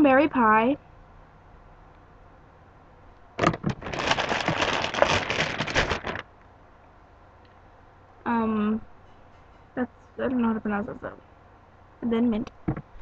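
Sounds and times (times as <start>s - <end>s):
plastic bottles clicking and rustling: 3.4s - 6.2s.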